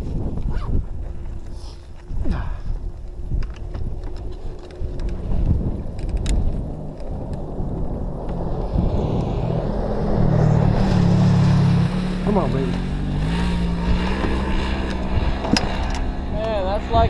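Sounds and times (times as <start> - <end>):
wind on microphone: 0.0 - 17.0
dirt bike engines idling: 0.9 - 8.8, 11.4 - 17.0
engine revving: 4.2 - 17.0.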